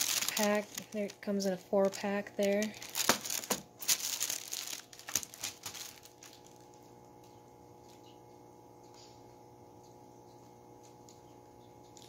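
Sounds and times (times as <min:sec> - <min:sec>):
plastic shrink-wrap crinkling: 0:00.0 - 0:06.8
faint steady hum: 0:00.0 - 0:12.0.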